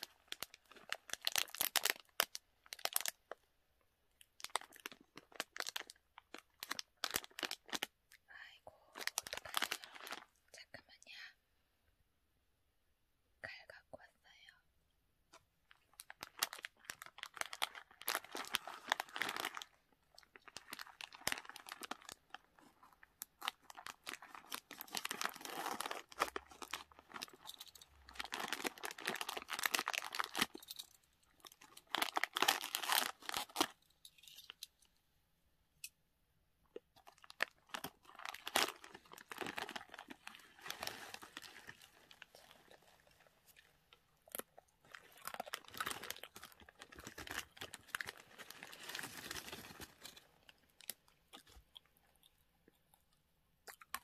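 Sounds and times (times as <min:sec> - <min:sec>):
plastic packet crinkling: 0:00.0 - 0:03.4, 0:04.2 - 0:07.9, 0:08.9 - 0:10.4, 0:15.6 - 0:34.7, 0:37.0 - 0:51.7.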